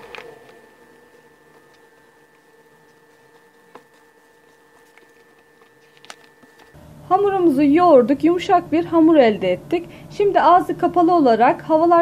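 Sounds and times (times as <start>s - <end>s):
hand kneading dough in bowl: 0.0s - 6.8s
faint steady hum: 0.0s - 12.0s.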